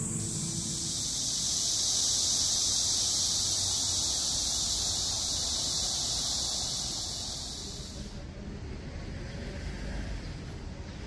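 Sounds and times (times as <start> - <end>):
cicadas buzzing: 0.0 - 8.2.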